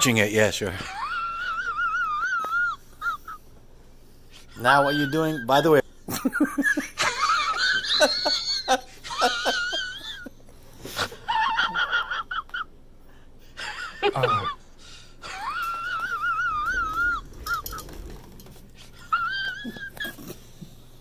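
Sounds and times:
person squealing with laughter: 0:00.8 - 0:03.4, 0:04.6 - 0:05.7, 0:11.0 - 0:12.7, 0:14.0 - 0:14.6, 0:15.2 - 0:18.0, 0:18.9 - 0:20.4.

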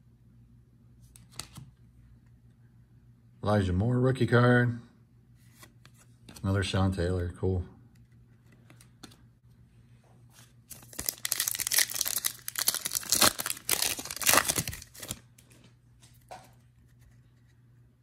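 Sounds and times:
foil wrapper tearing: 0:10.7 - 0:15.3.

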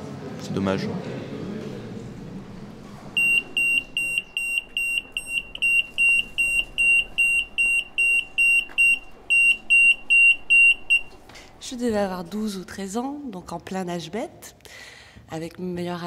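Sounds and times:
security gate alarm beeping: 0:03.2 - 0:11.2.

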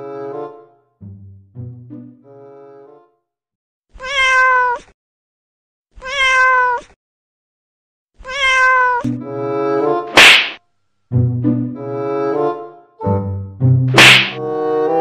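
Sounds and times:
music: 0:00.0 - 0:03.4, 0:09.0 - 0:10.2, 0:11.1 - 0:15.0
cat meowing: 0:03.9 - 0:05.0, 0:06.0 - 0:07.0, 0:08.2 - 0:09.1
loud swishing hit: 0:10.2 - 0:10.6, 0:13.9 - 0:14.4.

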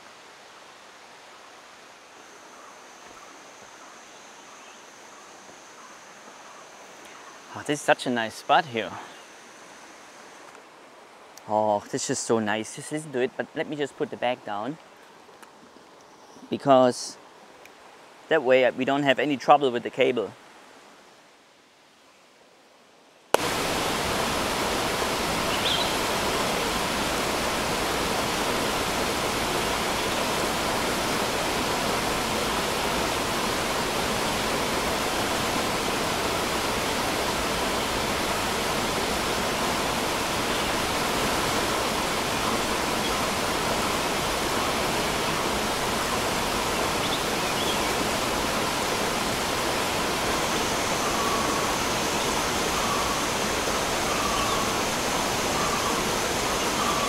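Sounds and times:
stream rushing over rocks: 0:00.0 - 0:03.8, 0:23.4 - 0:57.0
high insect drone: 0:01.2 - 0:10.7, 0:23.4 - 0:57.0
bird calls: 0:02.4 - 0:07.6, 0:25.3 - 0:26.8, 0:46.0 - 0:48.8, 0:49.6 - 0:57.0.

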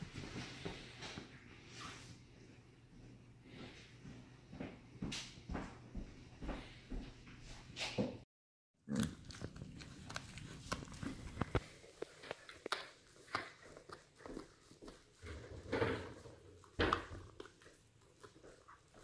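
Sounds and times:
dog gnawing on bone: 0:08.8 - 0:15.4.

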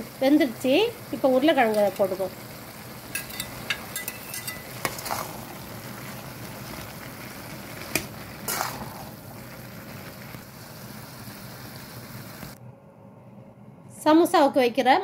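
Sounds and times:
filling sizzling in metal pan: 0:00.0 - 0:12.6
spatula scraping and tapping pan: 0:03.1 - 0:05.3.

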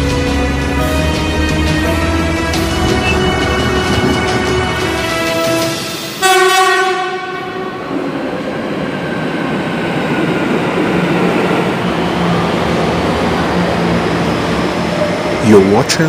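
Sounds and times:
train rushing past platform: 0:00.0 - 0:16.0
train horn: 0:00.6 - 0:08.0.

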